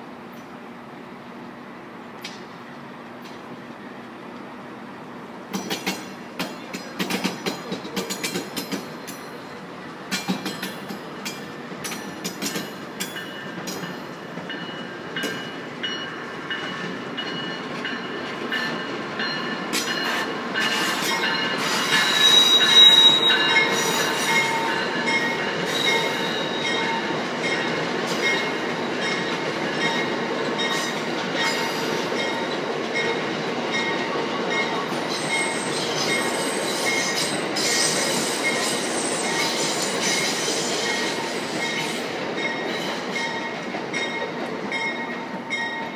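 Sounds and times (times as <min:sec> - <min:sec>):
train rumble: 0:00.0 - 0:45.9
train wheels clicking over rail joints: 0:05.5 - 0:45.9
high wavering wheel squeal: 0:20.6 - 0:24.9, 0:25.7 - 0:27.0, 0:35.1 - 0:42.0.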